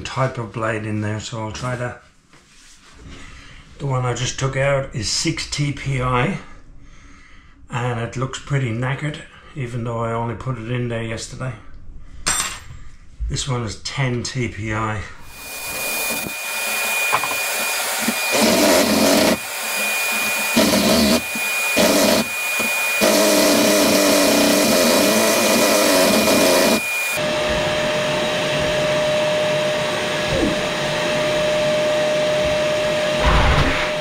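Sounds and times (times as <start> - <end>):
vacuum humming: 15.2 - 34.0
jigsaw cutting board: 15.3 - 27.7.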